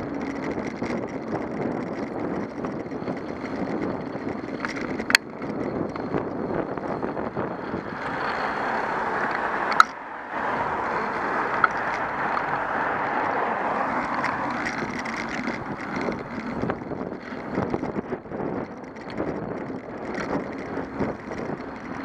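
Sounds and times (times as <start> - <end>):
bicycle tyre and road noise: 0.0 - 22.0
wind on microphone: 0.0 - 22.0
sharp clicks: 9.2 - 10.0.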